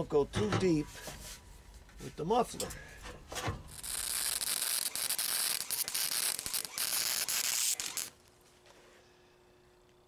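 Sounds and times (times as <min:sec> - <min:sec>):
welder arc crackling and hissing: 0:03.7 - 0:08.3.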